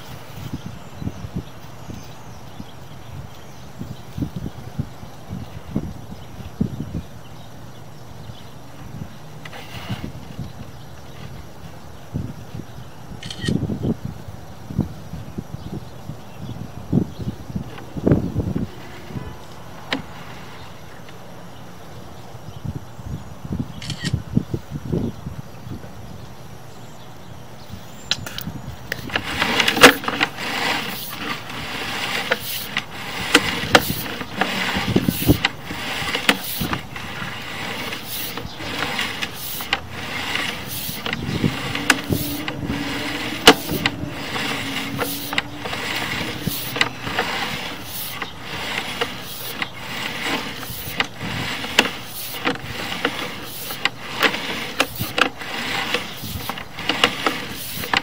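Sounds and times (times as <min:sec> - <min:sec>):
push cable rattling onto reel: 0:28.9 - 0:58.0.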